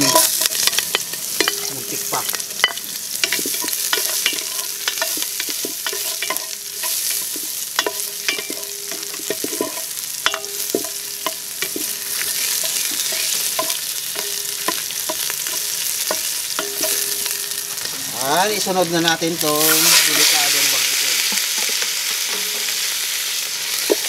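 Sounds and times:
wooden ladle scraping metal pot: 0:00.0 - 0:17.9
aromatics sizzling in oil: 0:00.0 - 0:24.0.

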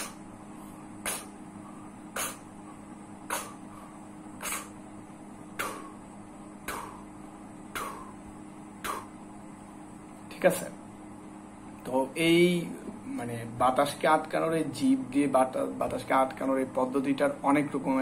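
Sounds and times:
man's sharp breath puffs: 0:00.0 - 0:04.8, 0:05.5 - 0:09.2.

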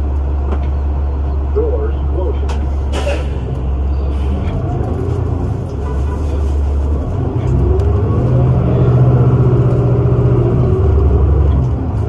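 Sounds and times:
bus accelerating from inside: 0:00.0 - 0:12.0.

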